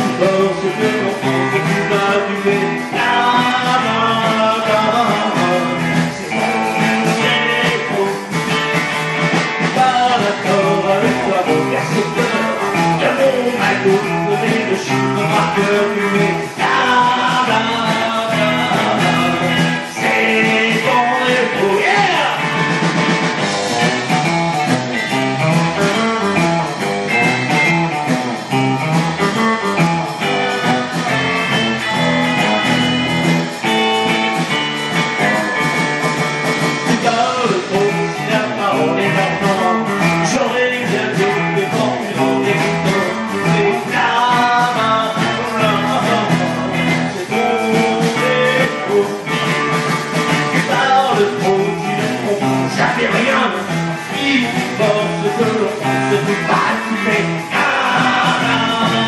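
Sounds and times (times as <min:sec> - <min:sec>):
person singing: 0:00.0 - 0:22.7, 0:36.8 - 0:59.0
bass guitar: 0:00.0 - 0:59.0
drums: 0:00.0 - 0:59.0
electric guitars: 0:00.0 - 0:59.0.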